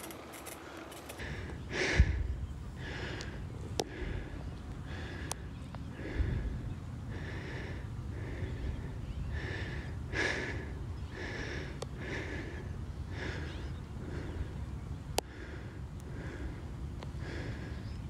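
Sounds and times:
sharp clicks: 0:00.0 - 0:01.5
man panting: 0:00.4 - 0:14.6, 0:15.2 - 0:17.9
wind rumble on microphone: 0:01.2 - 0:18.0.

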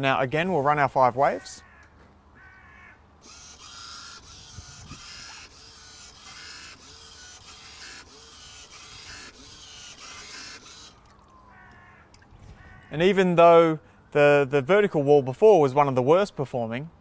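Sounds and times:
wave-maker paddle whirring: 0:03.2 - 0:11.1.

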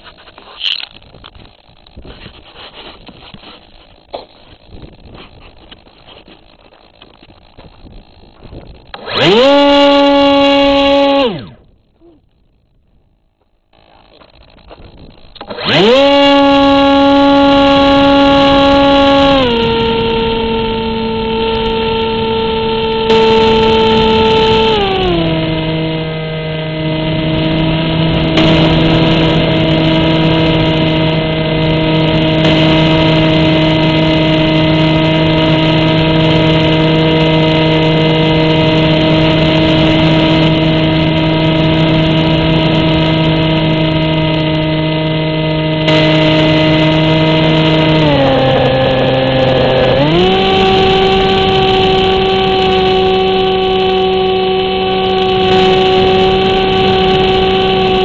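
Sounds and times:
model plane motor and propeller: 0:00.0 - 0:12.6, 0:13.4 - 0:58.0.

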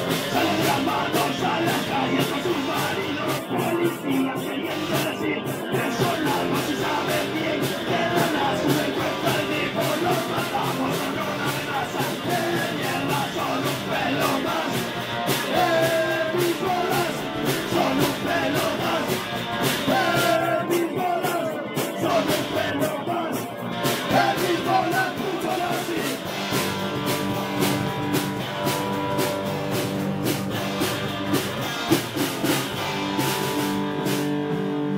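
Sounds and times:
electric bass: 0:00.0 - 0:20.8, 0:21.7 - 0:34.9
drum kit: 0:00.0 - 0:34.9
electric guitar: 0:00.0 - 0:34.9
person singing through microphone: 0:00.1 - 0:26.3.

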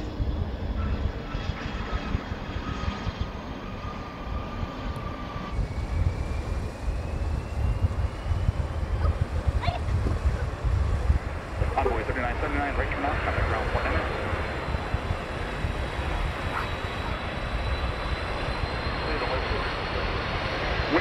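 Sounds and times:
jet engines whining: 0:00.0 - 0:21.0
wind on microphone: 0:00.0 - 0:21.0.

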